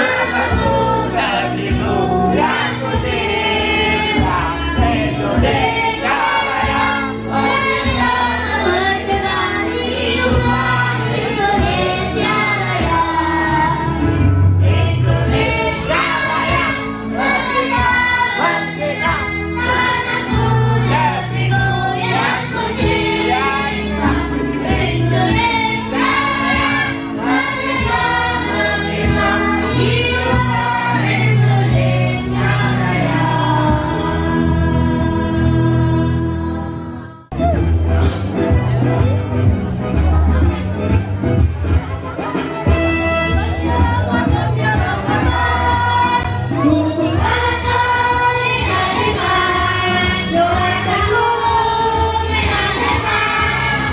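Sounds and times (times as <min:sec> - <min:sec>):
group of people singing: 0:00.0 - 0:38.2, 0:43.1 - 0:53.9
amplified backing music: 0:00.0 - 0:53.9.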